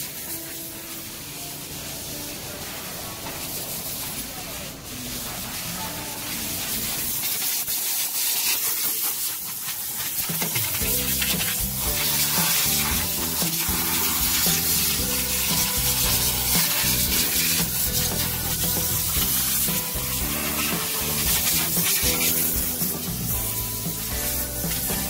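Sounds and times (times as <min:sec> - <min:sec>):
cleaning nozzle hissing: 0:00.0 - 0:25.0
background music with bass: 0:10.6 - 0:25.0.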